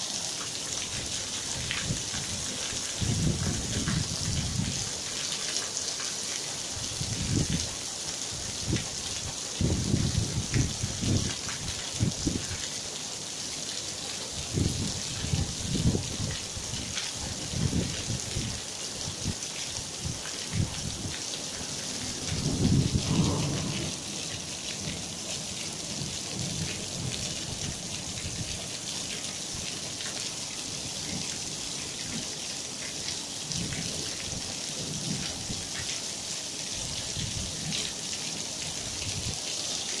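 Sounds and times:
hail and heavy rain falling: 0:00.0 - 0:40.0
low rumbles: 0:22.1 - 0:24.3.

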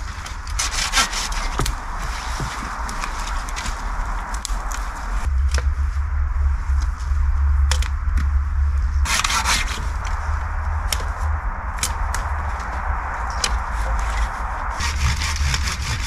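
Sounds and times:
low rumble: 0:00.0 - 0:16.0
saw scraping wood: 0:00.4 - 0:01.7, 0:09.1 - 0:10.0, 0:14.8 - 0:16.0.

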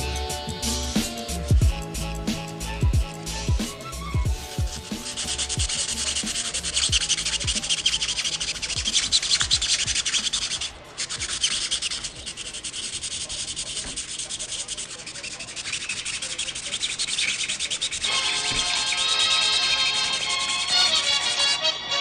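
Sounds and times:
background music: 0:00.0 - 0:11.3, 0:18.0 - 0:22.0
hand sanding with sandpaper: 0:00.6 - 0:21.5.

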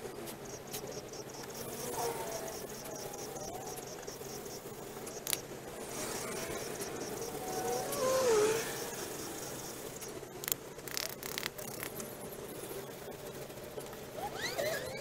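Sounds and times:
continuous hiss: 0:00.0 - 0:15.0
crickets chirping: 0:00.0 - 0:15.0
wavering call: 0:01.6 - 0:04.6, 0:05.2 - 0:10.0.

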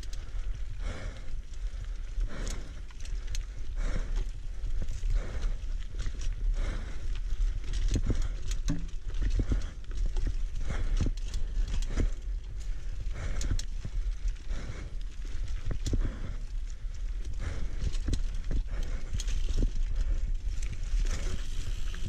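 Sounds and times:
bike rolling on dirt trail: 0:00.0 - 0:22.0
bike knocks and rattles: 0:07.8 - 0:10.3.

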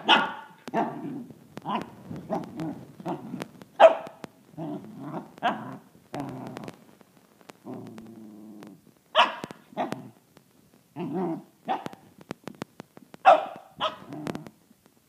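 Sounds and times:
puppy barking: 0:00.0 - 0:05.8, 0:09.1 - 0:10.1, 0:11.0 - 0:12.0, 0:13.2 - 0:14.3
puppy growling: 0:00.0 - 0:06.8, 0:07.6 - 0:10.2, 0:11.0 - 0:11.9, 0:13.8 - 0:14.6.

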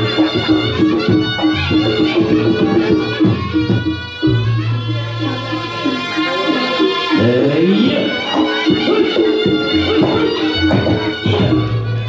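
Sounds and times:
pulsing drum beat: 0:00.0 - 0:12.0
traditional ensemble music: 0:00.0 - 0:12.0.

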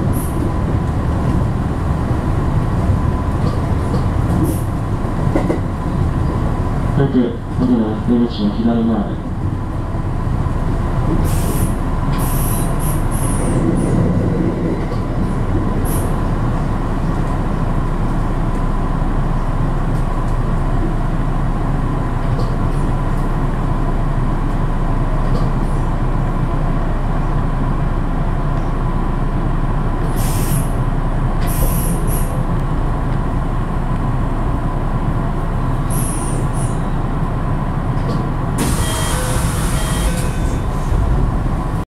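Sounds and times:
train wheels rumbling on track: 0:00.0 - 0:41.8
high-pitched squeals: 0:38.6 - 0:40.8.

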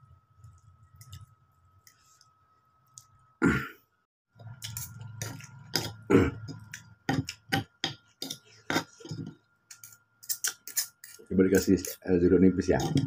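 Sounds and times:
man coughing: 0:03.4 - 0:03.8
fork and spoon scraping bowl: 0:08.2 - 0:12.0.

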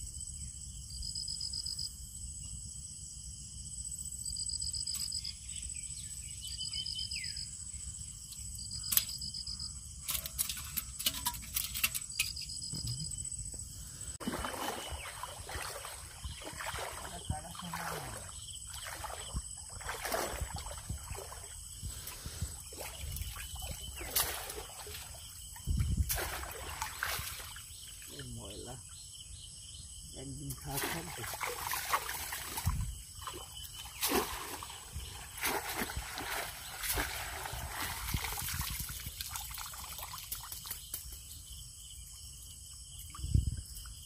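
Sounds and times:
water splashing and trickling: 0:08.2 - 0:13.4, 0:14.0 - 0:28.9, 0:30.1 - 0:44.0.

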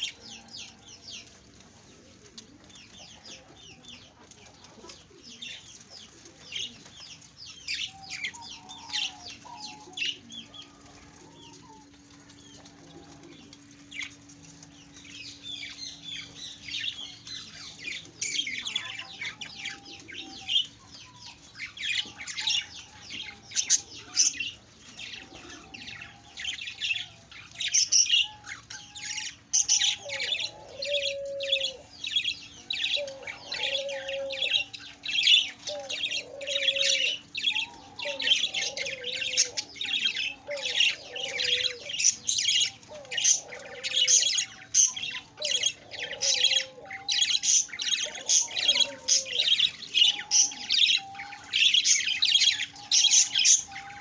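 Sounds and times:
wavering warbled bird calls: 0:05.2 - 0:54.0
budgerigars chirping: 0:15.0 - 0:54.0.

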